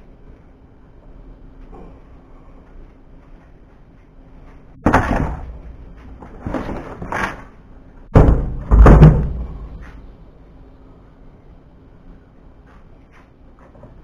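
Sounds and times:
plastic box thumping on metal plate: 4.8 - 5.5, 8.1 - 9.6.

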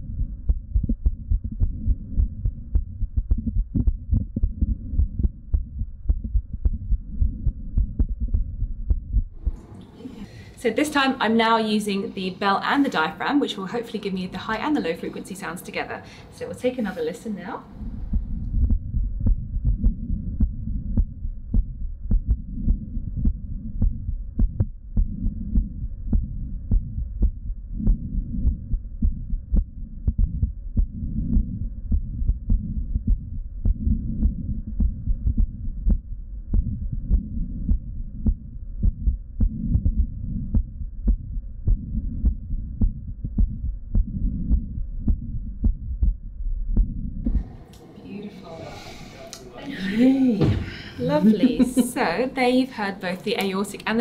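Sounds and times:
heartbeat through stethoscope: 0.0 - 9.7, 17.7 - 47.6
low rumble: 0.0 - 10.3, 17.6 - 52.5.

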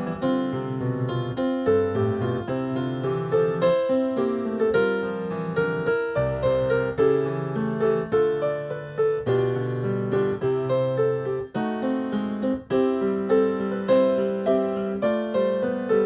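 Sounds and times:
solo grand piano: 0.0 - 16.0.

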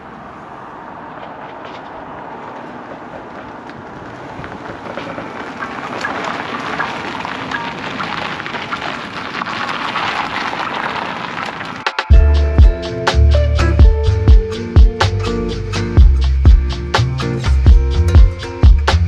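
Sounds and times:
tyres crunching on gravel: 0.8 - 12.0.

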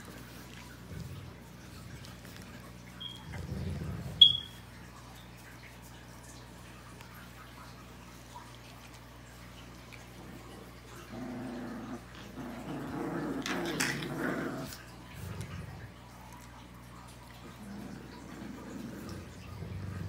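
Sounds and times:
dog growling: 0.0 - 4.4, 10.0 - 20.0.

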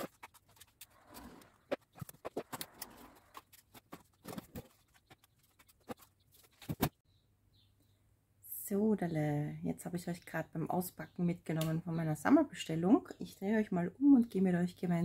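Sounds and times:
cardboard and wrapping rustling: 0.0 - 7.0.

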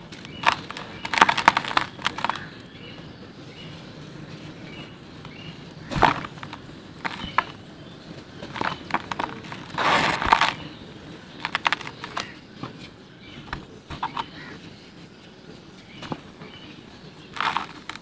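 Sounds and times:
dirt balls crunching by hand: 0.0 - 2.8, 4.3 - 13.0, 15.8 - 18.0
powdery dirt trickling: 0.0 - 2.9, 4.2 - 12.6, 15.8 - 18.0.

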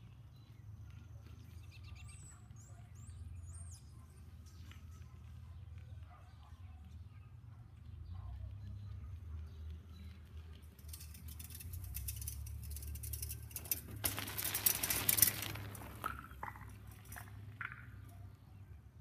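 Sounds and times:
bicycle tyres rolling on gravel: 9.0 - 18.1.

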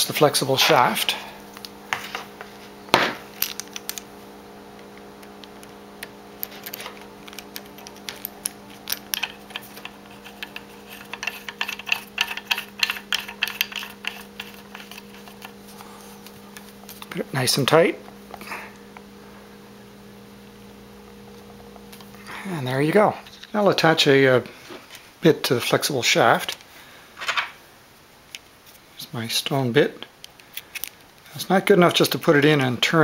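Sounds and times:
steady low hum: 0.0 - 27.9
metal clicks and scrapes: 6.5 - 15.9.

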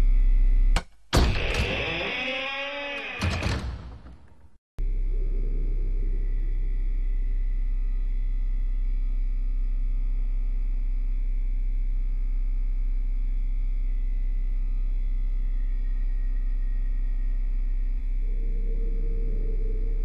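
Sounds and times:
low electronic drone: 4.8 - 20.0.

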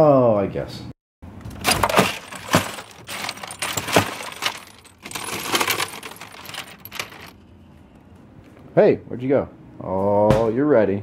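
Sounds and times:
ice cubes clinking: 1.5 - 7.3.

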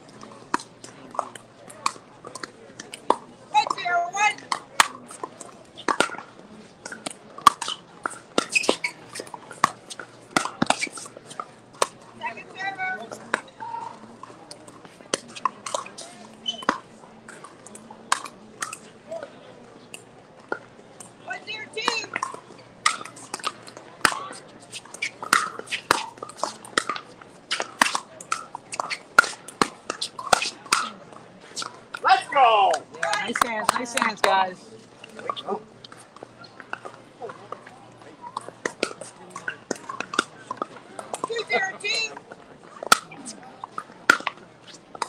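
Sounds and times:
paddles hitting plastic ball: 4.4 - 6.2, 6.8 - 12.0, 21.8 - 34.3, 42.2 - 45.0.

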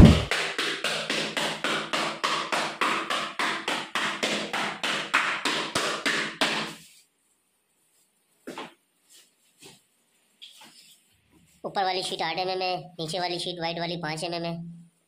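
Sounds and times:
rapid hammering: 0.0 - 6.8.

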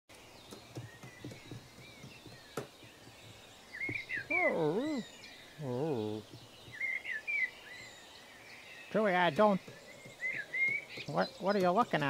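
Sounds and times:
birdsong chirps: 0.1 - 12.0
warbling creature moan: 4.3 - 6.2.

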